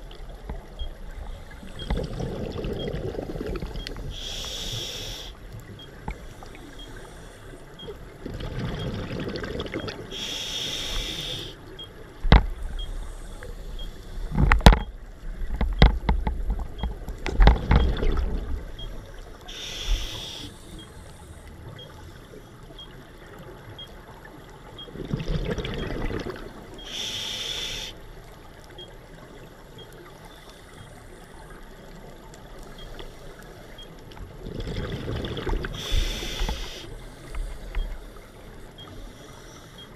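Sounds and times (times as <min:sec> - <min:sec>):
exhaled bubbles burbling: 0:01.8 - 0:03.8, 0:08.2 - 0:10.0, 0:17.6 - 0:18.7, 0:24.9 - 0:26.8, 0:34.4 - 0:35.8
regulator hiss: 0:04.1 - 0:05.4, 0:10.2 - 0:11.6, 0:19.5 - 0:21.0, 0:26.9 - 0:28.0, 0:35.8 - 0:37.6.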